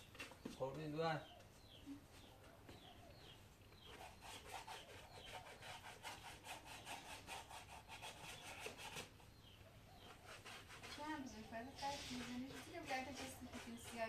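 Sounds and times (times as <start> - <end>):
hand tool scraping strokes: 3.8 - 9.1, 10.0 - 14.0.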